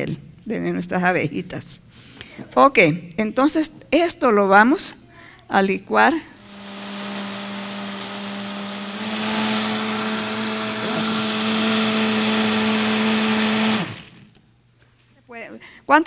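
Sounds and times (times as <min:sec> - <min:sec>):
blender motor running: 0:06.4 - 0:14.4.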